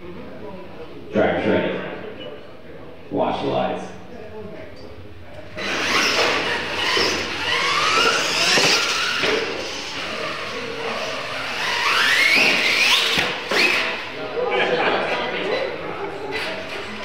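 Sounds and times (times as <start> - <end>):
electric motors whining: 5.4 - 14.4.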